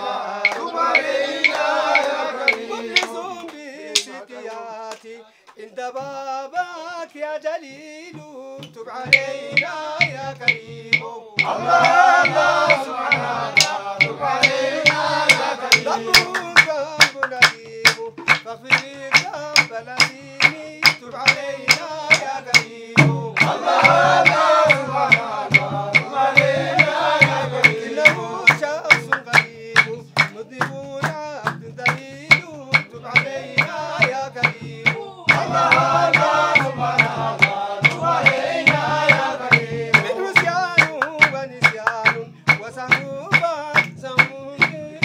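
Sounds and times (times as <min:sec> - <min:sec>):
hand-clapping: 0:00.0 - 0:05.7, 0:08.6 - 0:45.0
men chanting together: 0:00.0 - 0:05.8, 0:09.0 - 0:45.0.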